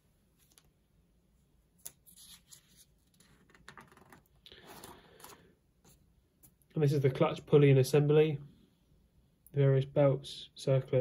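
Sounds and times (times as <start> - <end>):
paper page rustling: 1.8 - 6.0.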